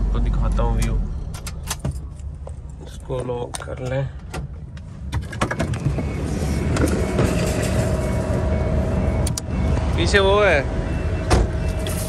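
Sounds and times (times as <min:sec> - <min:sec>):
road traffic noise: 0:00.0 - 0:12.0.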